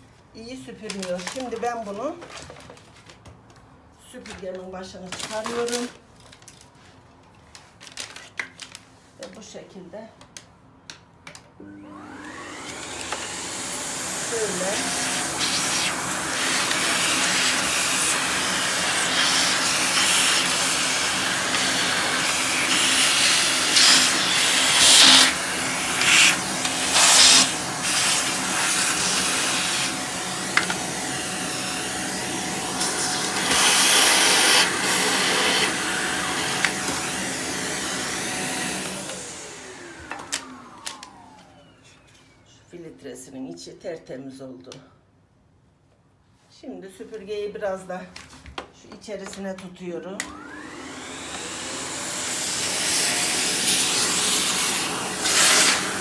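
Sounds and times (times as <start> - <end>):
vacuum motor winding down: 11.6 - 41.8, 50.2 - 56.0
vacuum cleaner running: 11.6 - 42.4, 50.2 - 56.0.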